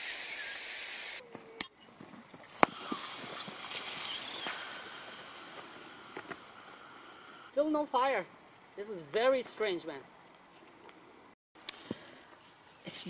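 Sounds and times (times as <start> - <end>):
hiss of escaping gas: 0.0 - 1.2, 2.5 - 7.5.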